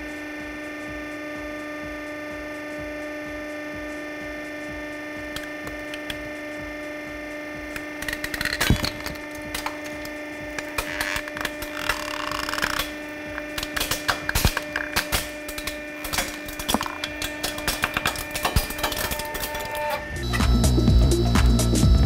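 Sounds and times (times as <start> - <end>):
hydraulic press humming: 0.0 - 22.0.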